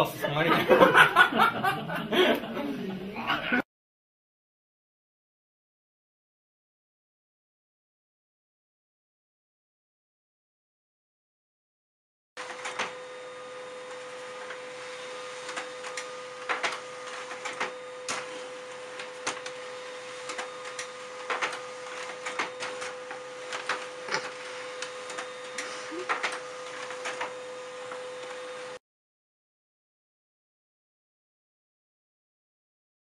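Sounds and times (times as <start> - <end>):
laser printer running: 12.4 - 28.8.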